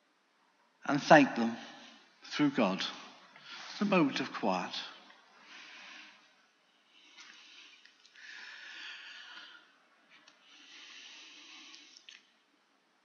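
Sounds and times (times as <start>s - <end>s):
man breathing slowly: 5.3s - 12.3s.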